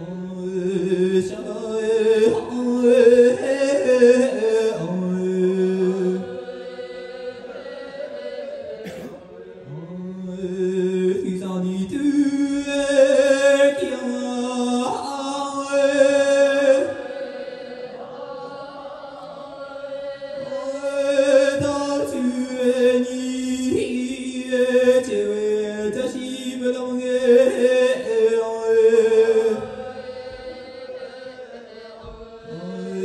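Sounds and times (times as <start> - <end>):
opera singing through microphones: 20.3 - 33.0.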